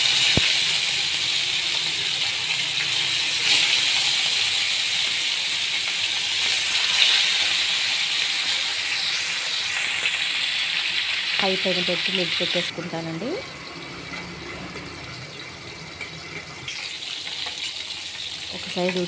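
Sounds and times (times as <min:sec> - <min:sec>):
fish sizzling in hot oil: 0:00.0 - 0:19.0.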